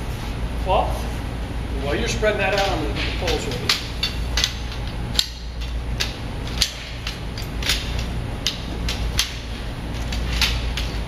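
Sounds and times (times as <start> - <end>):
steady low hum: 0.0 - 11.0
metal poles clicking and knocking: 2.4 - 11.0.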